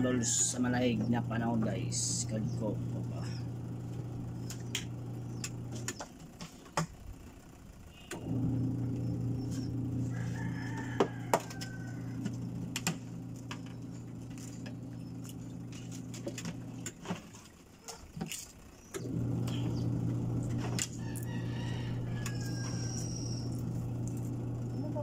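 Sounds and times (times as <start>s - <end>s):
low motor hum: 0.0s - 25.0s
rooster crowing: 9.0s - 13.8s, 20.8s - 25.0s.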